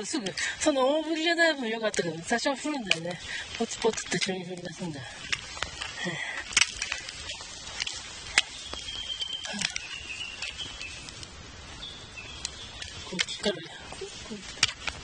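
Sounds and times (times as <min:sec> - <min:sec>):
low wind rumble: 0:00.0 - 0:15.0.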